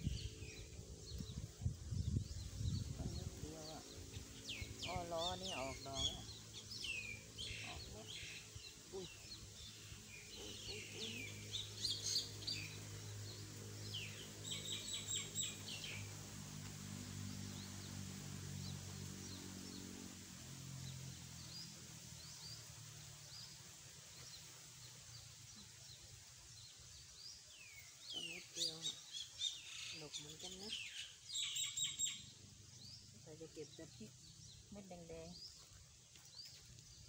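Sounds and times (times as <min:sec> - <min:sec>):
birds chirping and whistling: 0:00.0 - 0:16.1, 0:27.2 - 0:33.0
low steady drone: 0:00.0 - 0:30.7.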